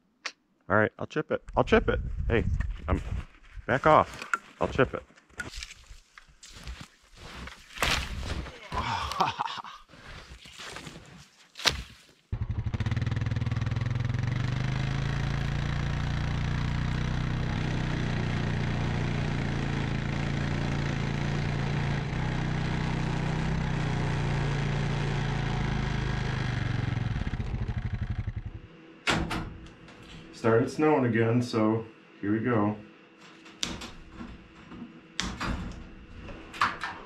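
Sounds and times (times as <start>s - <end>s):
atv engine running: 12.3s - 28.8s.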